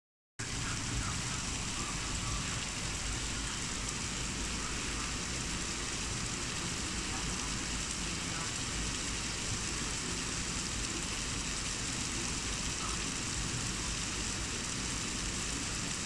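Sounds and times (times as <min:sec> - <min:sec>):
heavy rain pouring: 0:00.4 - 0:16.0.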